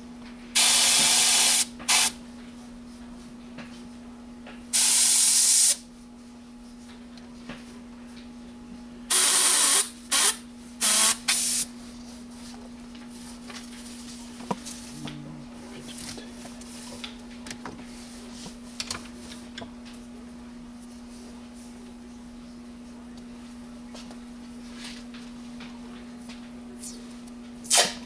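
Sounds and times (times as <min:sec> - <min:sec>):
steady low hum: 0:00.0 - 0:28.0
airbrush spraying hiss: 0:00.6 - 0:02.1, 0:04.8 - 0:05.8, 0:09.1 - 0:11.7.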